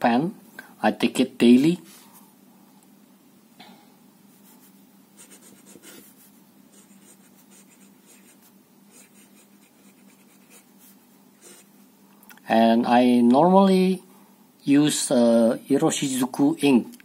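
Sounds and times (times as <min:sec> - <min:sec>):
fountain pen scratching on paper: 0:04.4 - 0:11.7.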